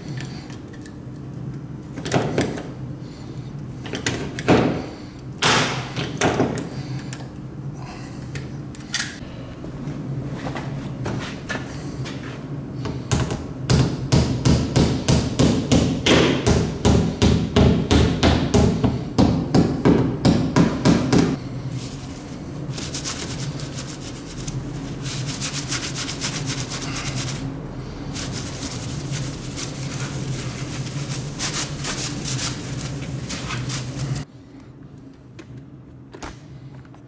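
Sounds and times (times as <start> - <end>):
steady low hum: 0.0 - 37.0
cloth wiping metal panel: 21.8 - 34.2.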